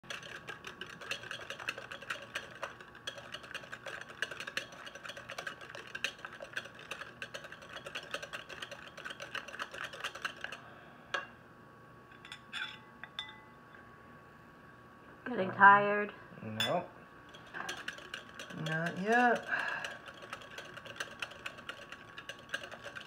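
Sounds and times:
whisk clicking against glass bowl: 0.0s - 10.6s, 17.3s - 23.0s.

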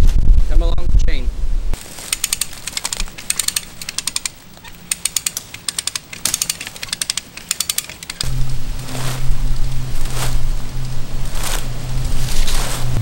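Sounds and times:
ratchet pawl clicks: 2.0s - 8.3s.

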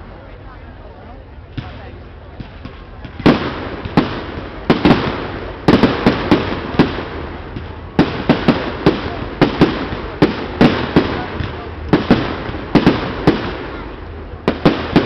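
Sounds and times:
continuous rush of noise: 0.0s - 15.0s.

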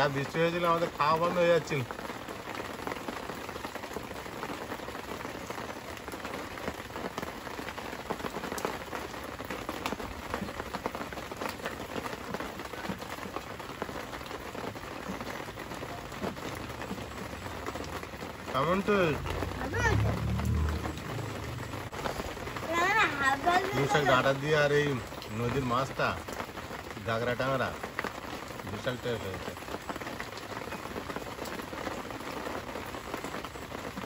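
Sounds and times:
heavy rain: 0.0s - 34.0s
raindrop hits: 0.0s - 34.0s.

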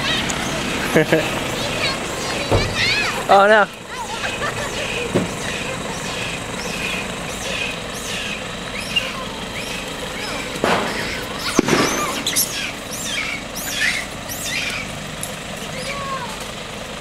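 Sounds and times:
steady background hum: 0.0s - 14.9s
loud sharp sounds: 0.0s - 15.1s
short high chirping calls: 4.1s - 15.0s.

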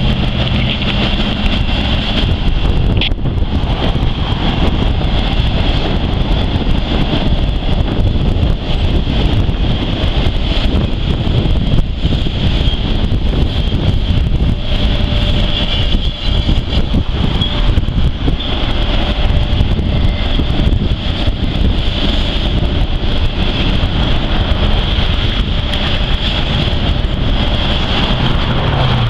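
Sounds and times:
train wheels rumbling on rail: 0.0s - 29.0s
high steady squeal: 8.6s - 29.0s.

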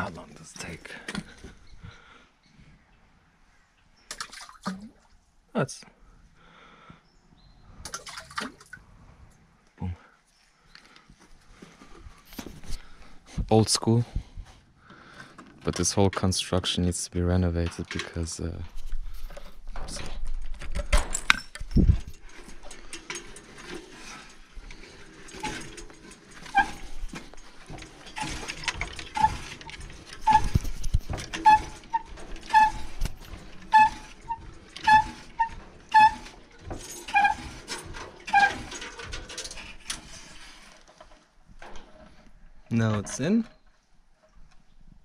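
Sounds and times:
wooden windlass squeaking: 17.4s - 44.4s
chain clanking and rattling: 17.6s - 43.6s.

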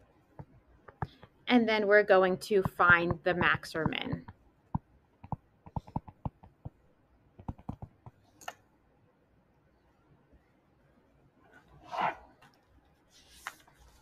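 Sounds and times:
stylus tapping on tablet screen: 0.3s - 1.4s, 2.5s - 6.8s, 7.4s - 8.6s.

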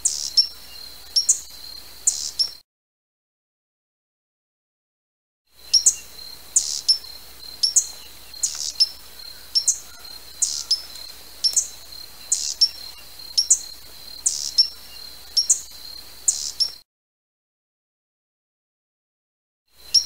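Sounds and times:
hummingbird chip calls: 0.0s - 2.6s, 5.6s - 16.8s.

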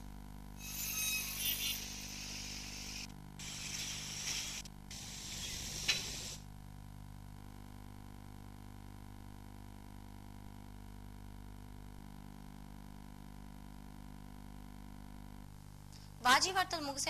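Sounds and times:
hissing rustling noise: 3.4s - 6.4s.

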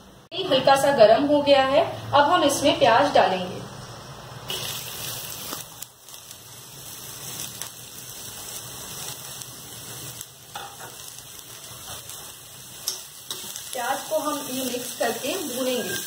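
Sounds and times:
onions sizzling in hot oil: 4.4s - 16.0s.

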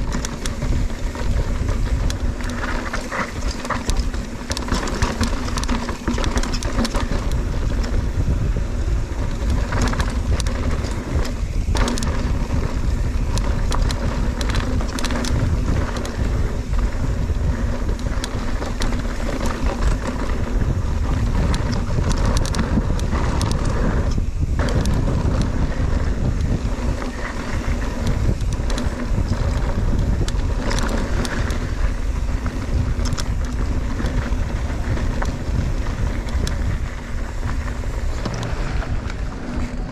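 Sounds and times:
wind buffeting microphone: 0.0s - 39.9s
heavy low rumble: 28.1s - 39.9s.

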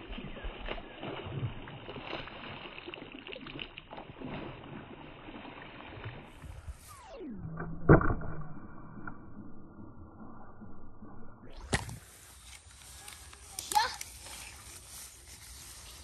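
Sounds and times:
water splashing: 0.0s - 7.1s.

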